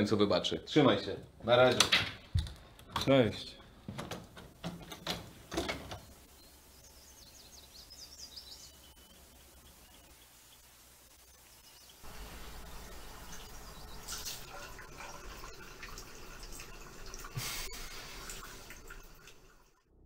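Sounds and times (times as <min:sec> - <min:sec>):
water splashes: 0:12.1 - 0:19.7.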